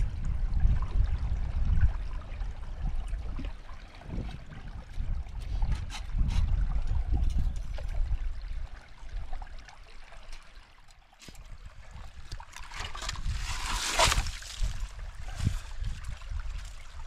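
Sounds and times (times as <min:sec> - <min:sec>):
water trickling and splashing: 0:00.0 - 0:17.0.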